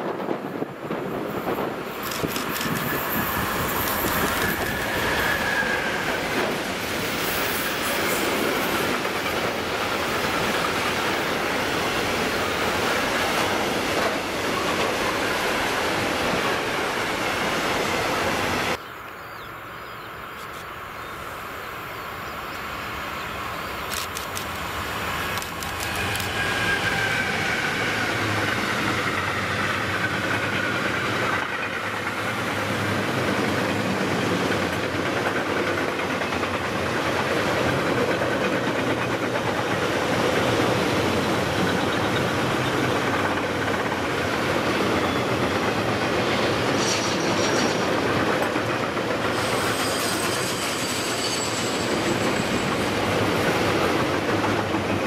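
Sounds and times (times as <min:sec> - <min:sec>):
train wheels rumbling and clattering: 0:00.0 - 0:18.8, 0:23.7 - 0:55.0
locomotive whine: 0:02.0 - 0:09.0, 0:22.4 - 0:31.4, 0:40.2 - 0:55.0
wheel squeals: 0:02.2 - 0:06.5, 0:49.3 - 0:53.3.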